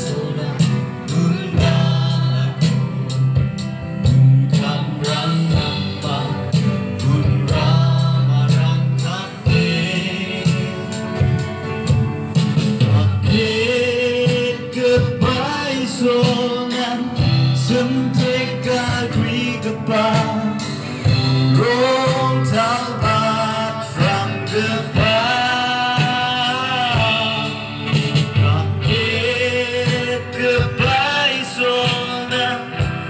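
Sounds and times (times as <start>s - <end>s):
instrumental backing with steady beat: 0.0s - 33.0s
person singing long held notes: 12.8s - 33.0s.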